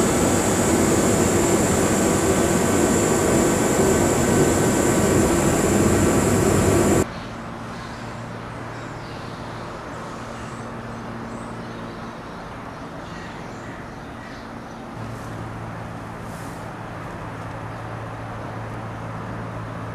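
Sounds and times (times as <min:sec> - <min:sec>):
broad rushing noise: 0:00.0 - 0:07.1
low mechanical hum: 0:00.0 - 0:13.5.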